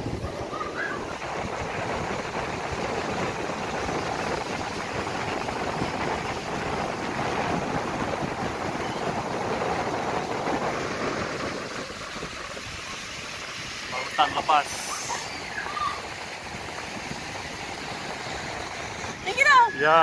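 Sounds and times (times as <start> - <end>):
surf breaking against rocks: 0.0 - 20.0
wind on microphone: 0.0 - 20.0.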